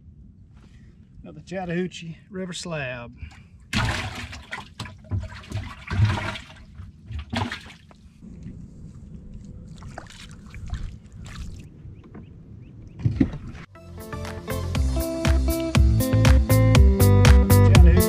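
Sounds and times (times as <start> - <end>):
water lapping: 3.2 - 8.2, 9.4 - 13.7
water splashing and trickling: 3.2 - 8.2, 9.6 - 12.2.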